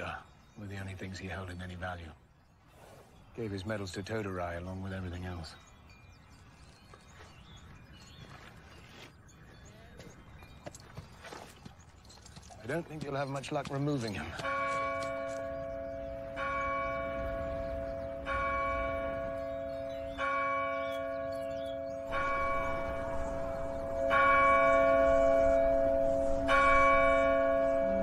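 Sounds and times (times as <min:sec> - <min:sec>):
large bell tolling: 0:14.4 - 0:28.0.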